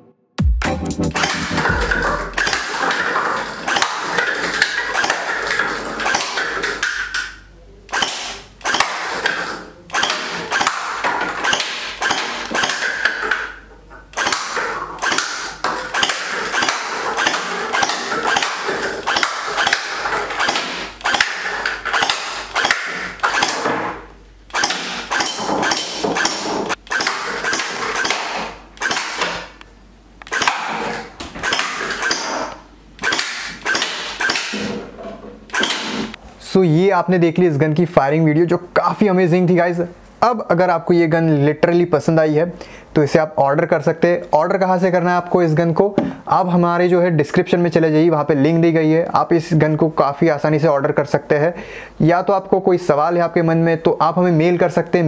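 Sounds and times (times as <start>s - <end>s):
gel blaster rapid firing: 0.4s - 6.9s, 7.9s - 13.3s, 14.1s - 23.8s, 24.5s - 29.5s, 30.3s - 32.4s, 33.0s - 34.7s, 35.5s - 36.2s
gel balls hitting paper cups: 1.8s - 23.9s.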